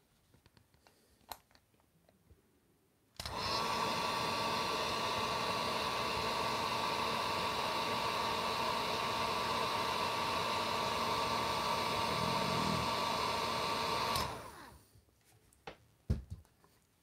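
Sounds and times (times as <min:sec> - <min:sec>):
heat gun fan whine: 0:03.2 - 0:14.8.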